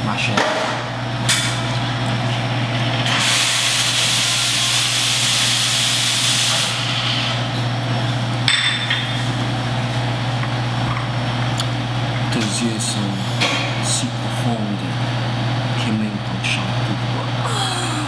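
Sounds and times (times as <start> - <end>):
espresso machine hum: 0.9 - 17.6
steam hissing: 3.1 - 7.2.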